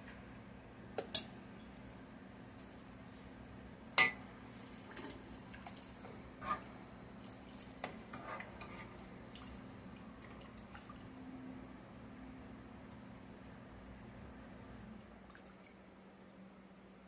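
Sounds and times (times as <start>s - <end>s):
faint steady hum: 0.0s - 17.0s
wet sloshing sauce: 4.7s - 11.3s.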